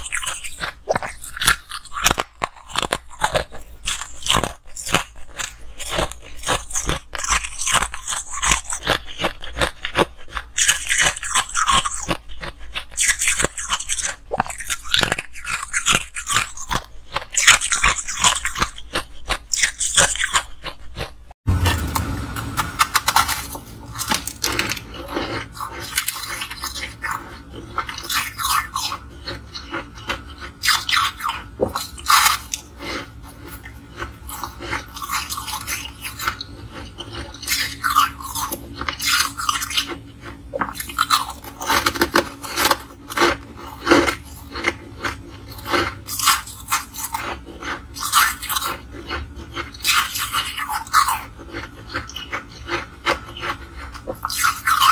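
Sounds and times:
crunching ice: 0:00.0 - 0:54.9
low hum: 0:21.5 - 0:29.2.

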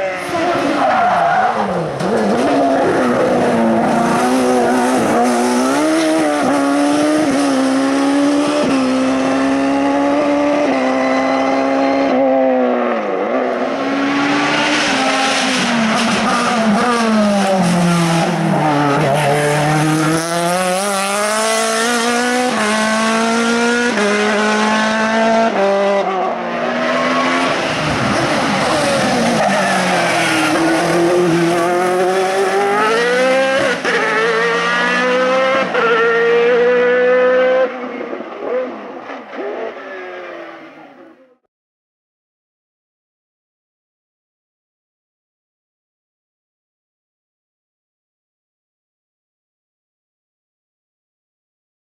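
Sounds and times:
racing car engines at high revs: 0:00.0 - 0:41.0.

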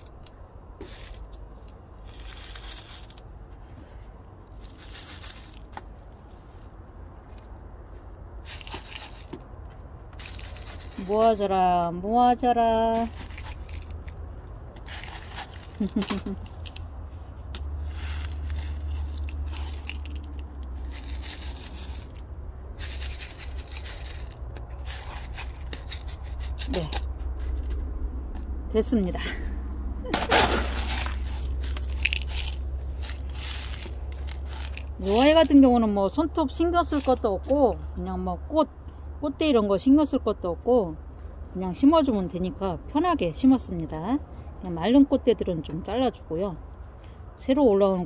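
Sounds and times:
gravel crunching and scraping: 0:00.0 - 0:29.0, 0:30.0 - 0:38.2
little stones clicking: 0:13.0 - 0:16.9, 0:17.5 - 0:22.2, 0:30.8 - 0:35.6.

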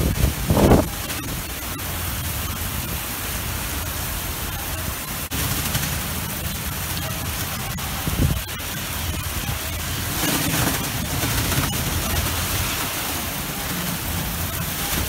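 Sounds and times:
wind rumble on microphone: 0:00.0 - 0:03.0, 0:07.3 - 0:15.0
heavy rain pouring: 0:00.0 - 0:15.0.

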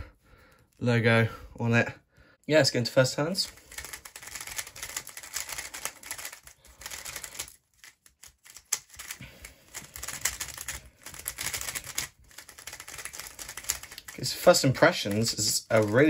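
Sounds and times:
puzzle cube plastic clicks: 0:03.5 - 0:16.0.

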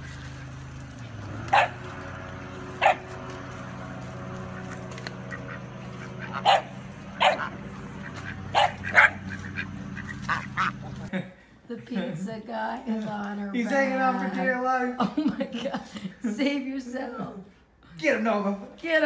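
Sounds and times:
steady low hum: 0:00.0 - 0:11.1
dog barking: 0:01.5 - 0:01.9, 0:02.8 - 0:03.1, 0:06.2 - 0:07.6, 0:08.5 - 0:09.4.

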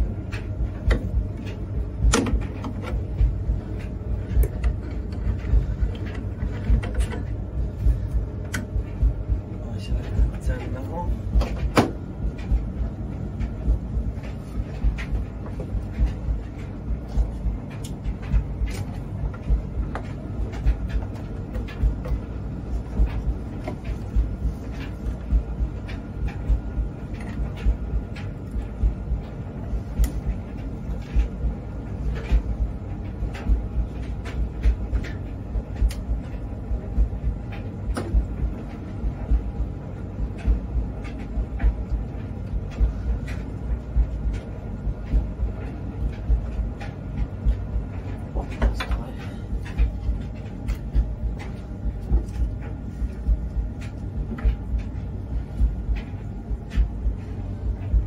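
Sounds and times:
low thumps: 0:00.0 - 0:31.6
steady low rumble: 0:00.0 - 0:58.0.

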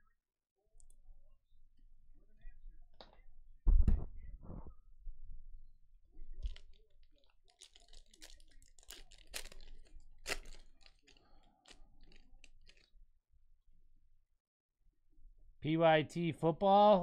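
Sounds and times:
foil wrapper crinkling and tearing: 0:06.4 - 0:12.9.

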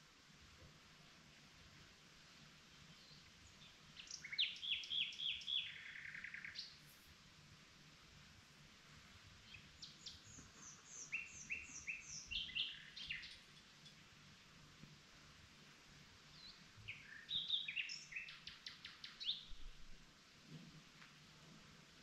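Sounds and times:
nightingale singing: 0:02.9 - 0:06.8, 0:09.4 - 0:14.0, 0:16.3 - 0:19.8.

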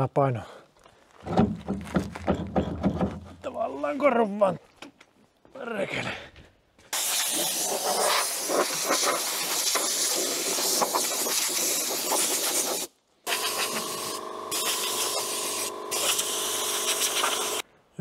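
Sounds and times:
pressure washer spraying metal: 0:07.0 - 0:17.6
steady machine hum: 0:13.3 - 0:17.6.

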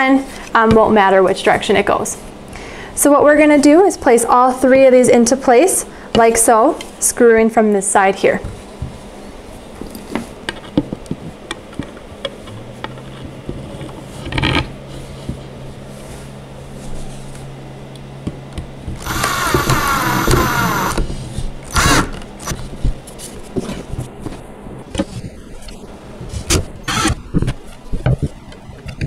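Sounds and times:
faint steady hum: 0:00.0 - 0:29.0
cordless drill driving screw: 0:19.0 - 0:21.0, 0:21.7 - 0:22.6, 0:26.9 - 0:27.2.

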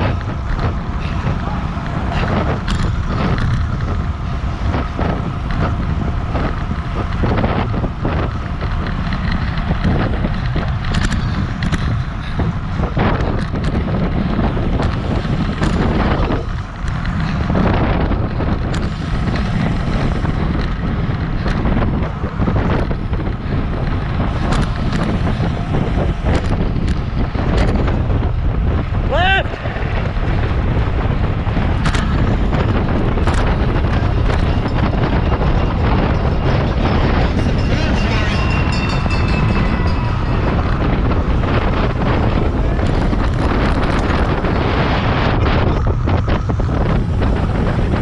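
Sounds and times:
wind buffeting microphone: 0:00.0 - 0:48.0.

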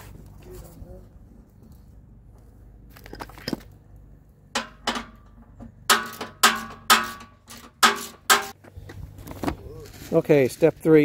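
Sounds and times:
tool striking metal with ringing: 0:05.9 - 0:08.6.

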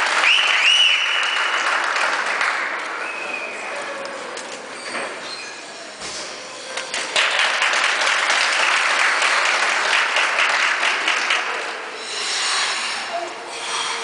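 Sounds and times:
audience applauding: 0:00.0 - 0:03.8, 0:06.8 - 0:12.1.

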